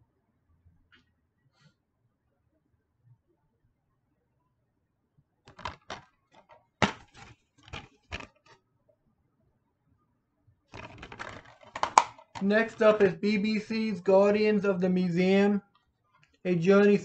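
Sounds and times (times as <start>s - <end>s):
plastic case clicks and snaps: 5.5s - 8.3s, 10.8s - 12.5s
rustling handling noise: 5.5s - 8.6s, 10.8s - 14.6s.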